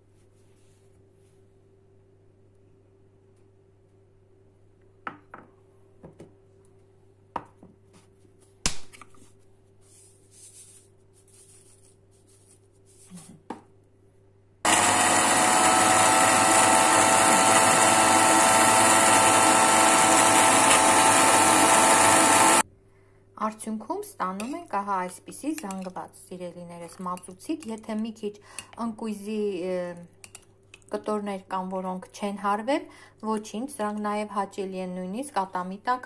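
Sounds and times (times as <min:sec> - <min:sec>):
electric blender running: 0:14.7 - 0:22.6.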